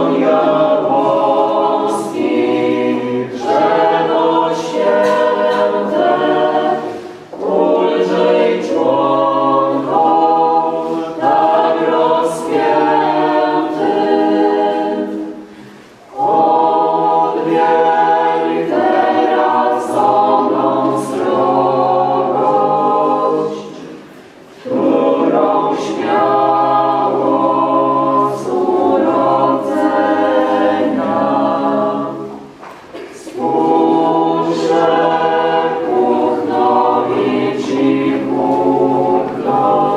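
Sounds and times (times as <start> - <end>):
choir singing: 0.0 - 39.9.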